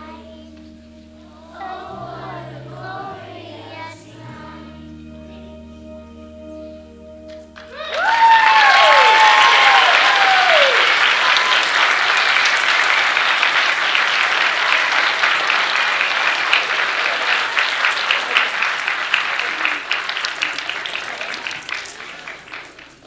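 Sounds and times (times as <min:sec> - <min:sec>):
audience applause: 0:07.3 - 0:23.0
people whooping: 0:07.6 - 0:23.0.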